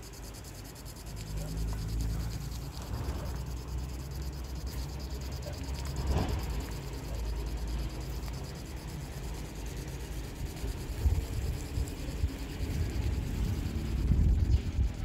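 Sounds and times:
wind buffeting microphone: 0:10.8 - 0:15.0.

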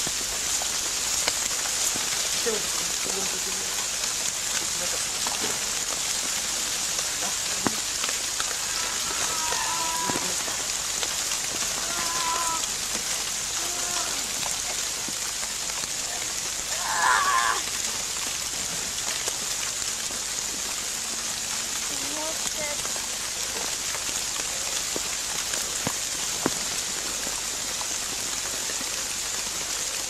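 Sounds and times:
rain falling: 0:00.0 - 0:30.0
burst of noise: 0:07.4 - 0:12.8.

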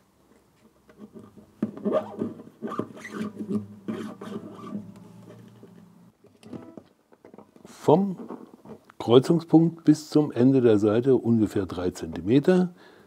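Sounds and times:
guitar string scratching and rubbing: 0:00.9 - 0:06.8, 0:08.0 - 0:08.8
faint ringing guitar strings: 0:03.5 - 0:06.8.

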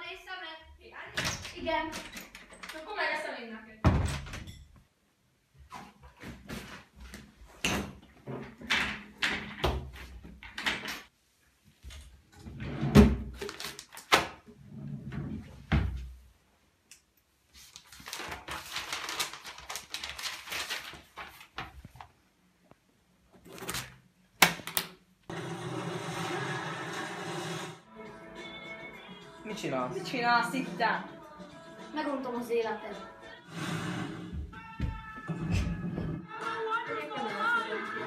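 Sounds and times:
paper pages rustling: 0:13.4 - 0:14.2, 0:17.5 - 0:22.2.

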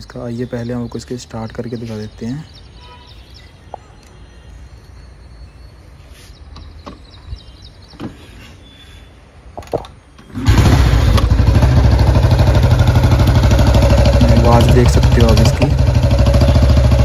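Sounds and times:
motorcycle engine starting and running: 0:10.3 - 0:17.0.

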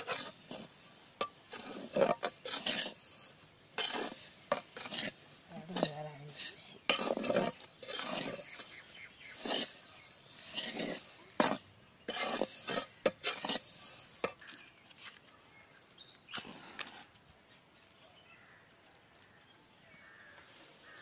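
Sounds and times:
metal spatula scraping flour in pan: 0:00.0 - 0:14.7
faint outdoor background: 0:00.0 - 0:21.0.

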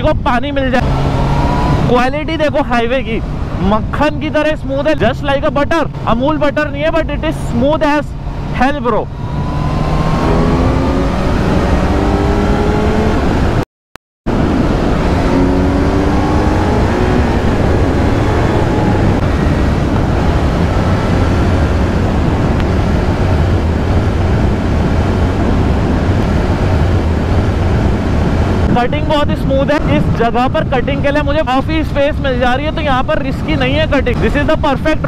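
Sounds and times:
wind rush on microphone: 0:00.0 - 0:13.6, 0:14.3 - 0:35.0
motorcycle engine revving: 0:00.7 - 0:02.1, 0:08.1 - 0:13.6, 0:14.3 - 0:28.7.

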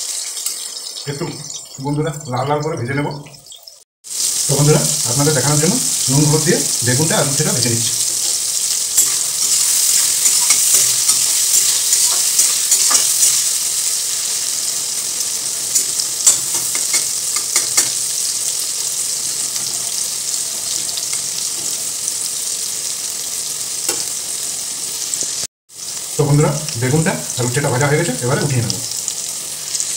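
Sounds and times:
vegetables sizzling in oil: 0:00.0 - 0:29.9
spatula scraping a pan: 0:09.0 - 0:13.6.

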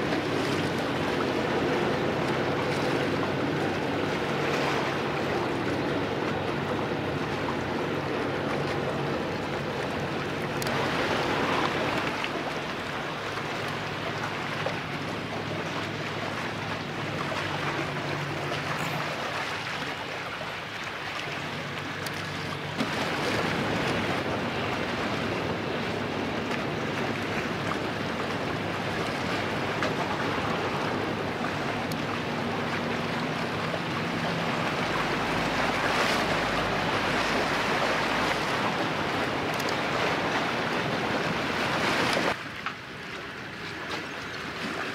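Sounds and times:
boat engine running: 0:00.0 - 0:44.9
hiss of wind and water: 0:00.0 - 0:44.9.

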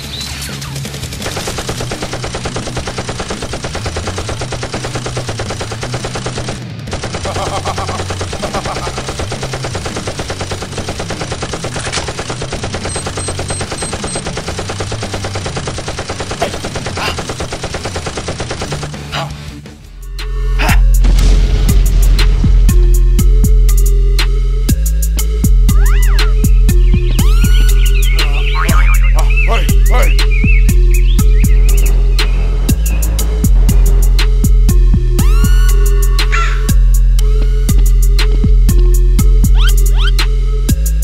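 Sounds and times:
rapid automatic gunfire: 0:00.7 - 0:19.1.

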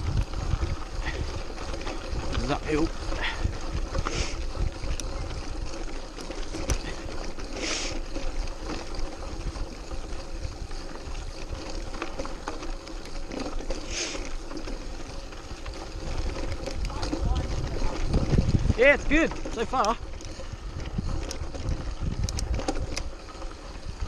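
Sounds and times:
wind rumble on microphone: 0:00.0 - 0:07.5, 0:14.9 - 0:24.0
bike clicking and rattling: 0:00.0 - 0:24.0
tyres crunching over stones: 0:00.0 - 0:24.0.

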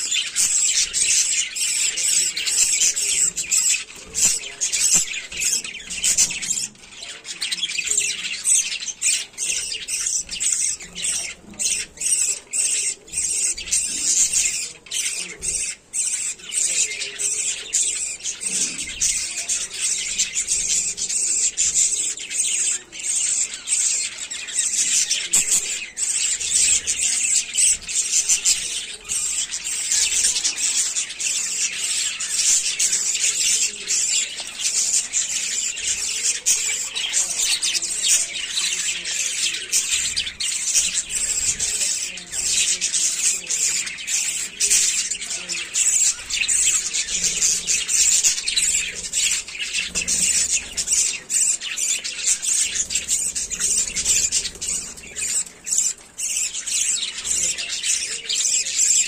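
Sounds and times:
budgerigars chattering: 0:00.0 - 0:59.0.

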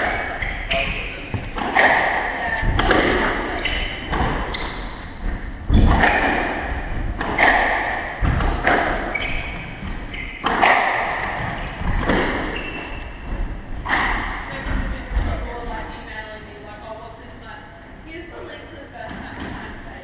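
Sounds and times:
shoes squeaking on wooden floor: 0:00.0 - 0:01.9, 0:03.5 - 0:06.2, 0:08.2 - 0:13.7
squash ball thuds: 0:00.0 - 0:15.6.

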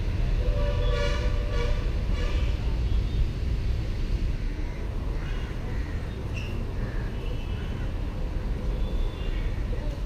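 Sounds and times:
traffic rumble: 0:00.0 - 0:10.0
vehicle horn blast: 0:00.4 - 0:02.5.

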